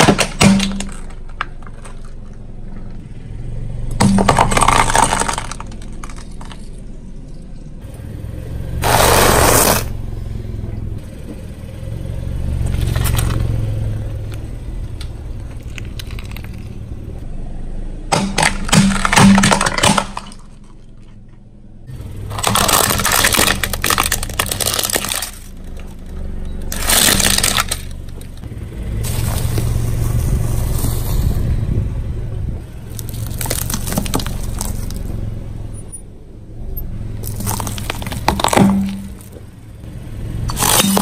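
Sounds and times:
tyre crushing plastic and food: 0.0s - 2.4s, 4.0s - 6.7s, 18.1s - 20.8s, 22.2s - 26.0s, 26.7s - 28.4s, 29.0s - 31.0s, 32.9s - 35.1s, 37.2s - 39.4s, 40.5s - 41.0s.

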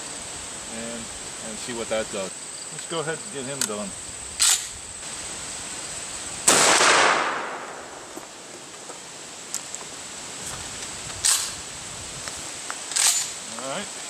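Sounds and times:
shotgun blast echoing: 6.5s - 8.2s.

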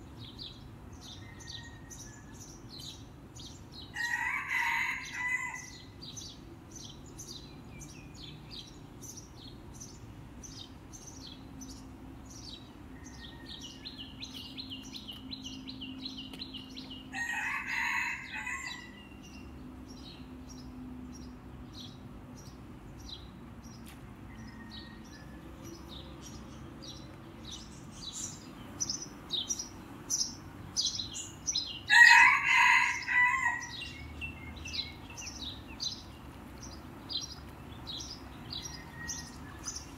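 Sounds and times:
small birds chirping: 0.0s - 39.9s
rooster crowing: 4.0s - 5.8s, 17.1s - 19.1s, 24.3s - 25.5s, 31.9s - 34.0s, 38.5s - 39.7s.

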